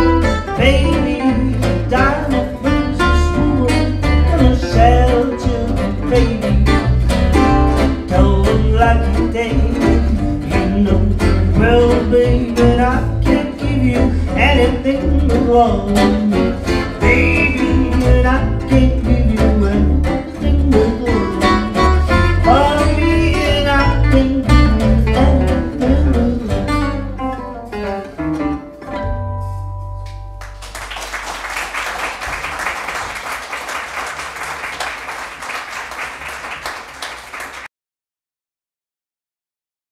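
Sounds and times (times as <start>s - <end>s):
acoustic guitars and double bass: 0.0s - 33.2s
audience applause: 30.5s - 37.7s.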